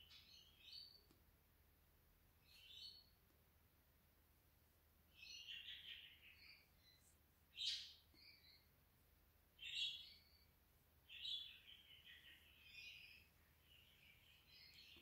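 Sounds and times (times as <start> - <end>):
faint high bird chirps: 0.0 - 1.2, 2.4 - 3.2, 5.1 - 8.8, 9.6 - 15.0.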